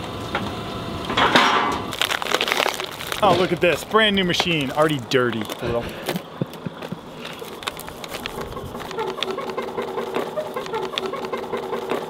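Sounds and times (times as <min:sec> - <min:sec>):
plastic wrapping crinkling: 0:01.9 - 0:09.5.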